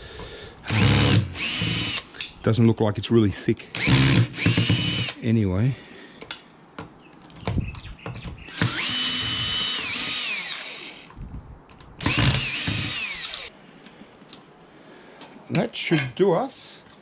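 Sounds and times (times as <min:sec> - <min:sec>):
power drill spinning: 0:00.7 - 0:02.1, 0:03.8 - 0:05.2, 0:08.5 - 0:11.1, 0:12.0 - 0:13.5.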